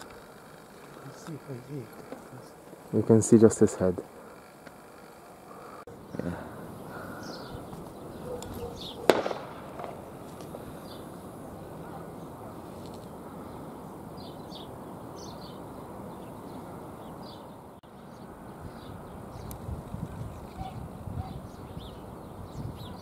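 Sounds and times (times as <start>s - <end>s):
distant shotgun shot: 8.4s - 10.2s.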